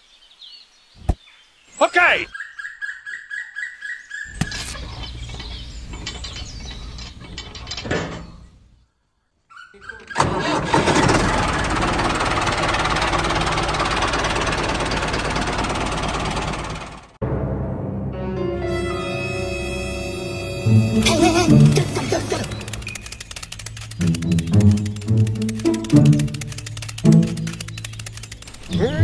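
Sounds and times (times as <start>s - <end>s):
engine knocking: 10.5s - 17.2s, 22.4s - 29.0s
engine running steadily: 10.8s - 17.2s, 20.9s - 29.0s.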